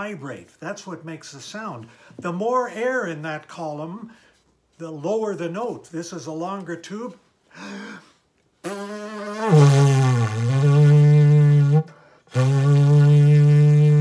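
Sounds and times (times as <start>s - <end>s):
breath: 1.9s - 2.2s, 4.1s - 4.5s, 7.5s - 8.3s, 11.9s - 12.3s
low brass-like buzzing note: 8.7s - 14.0s.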